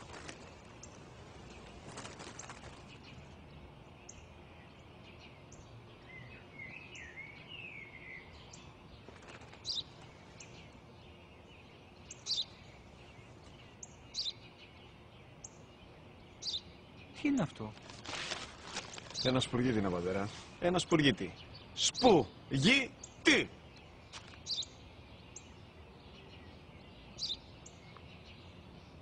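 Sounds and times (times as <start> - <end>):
faint outdoor background noise: 0.0 - 29.0
warbling bird song: 0.0 - 29.0
sparrow chirping: 0.2 - 17.7, 19.0 - 29.0.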